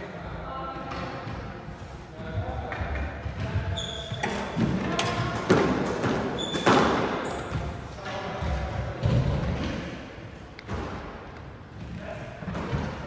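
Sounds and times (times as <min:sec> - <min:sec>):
squash ball thumps echoing: 0:02.2 - 0:13.0
short high shoe squeaks: 0:03.7 - 0:04.6, 0:06.3 - 0:07.5.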